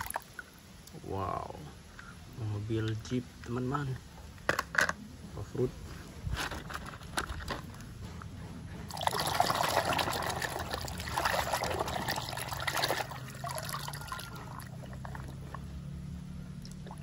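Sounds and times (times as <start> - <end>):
water splashing in a tub: 0.0 - 0.8, 8.9 - 17.0.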